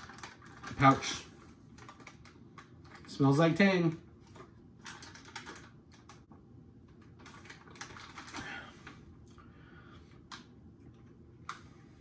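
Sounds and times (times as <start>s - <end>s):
plastic bag crinkling: 0.0s - 3.4s, 4.2s - 6.2s, 7.2s - 8.6s.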